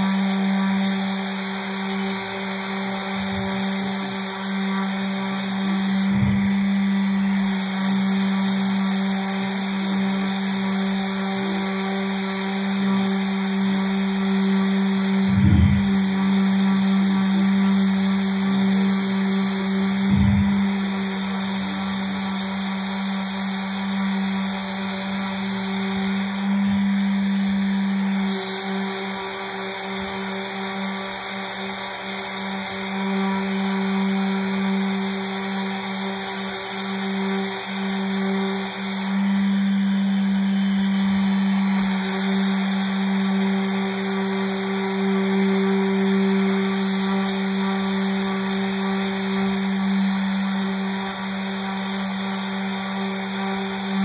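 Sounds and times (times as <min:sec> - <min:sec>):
electric sander running: 0:00.0 - 0:54.0.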